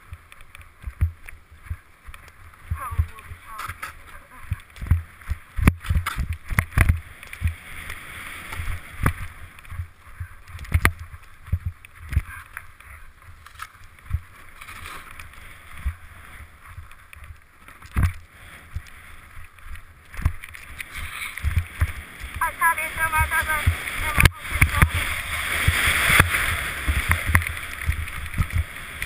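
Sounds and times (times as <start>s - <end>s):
snow hissing under ski edges: 20.9s - 22.2s.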